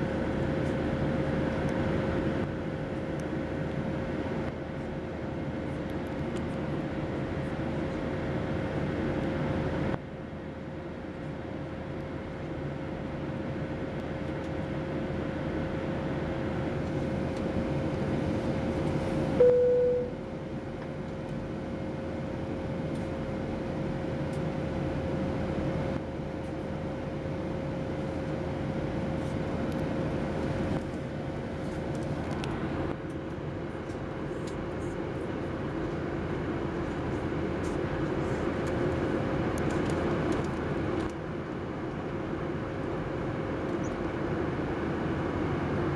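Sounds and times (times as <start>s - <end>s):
airplane cabin engine rush: 0.0s - 45.9s
steady hum: 0.0s - 45.9s
brief loud tone: 19.4s - 20.2s.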